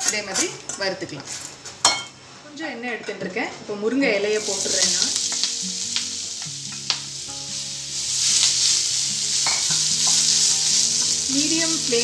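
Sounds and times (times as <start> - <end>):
leaves sizzling in hot oil: 4.1 - 12.0.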